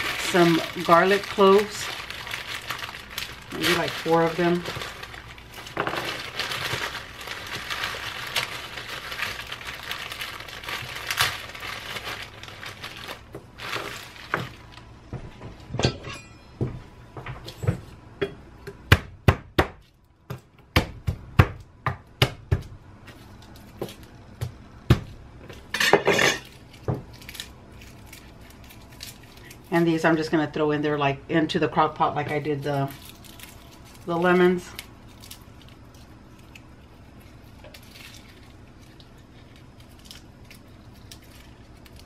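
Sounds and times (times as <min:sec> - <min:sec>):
plastic glove and bag crinkling: 0:00.0 - 0:15.0, 0:26.4 - 0:30.6, 0:31.7 - 0:42.0.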